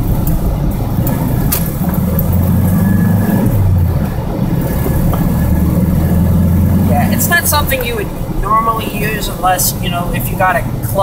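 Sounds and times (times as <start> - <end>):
gear shift: 0.0 - 9.4
car engine running: 0.0 - 11.0.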